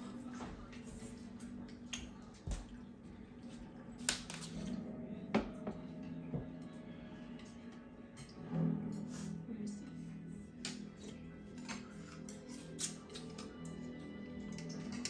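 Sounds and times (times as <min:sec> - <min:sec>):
low hum: 0:00.0 - 0:12.4.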